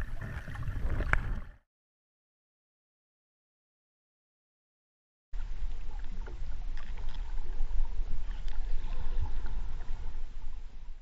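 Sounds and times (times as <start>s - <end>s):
muffled underwater rumble: 0.0s - 1.6s, 5.4s - 11.0s.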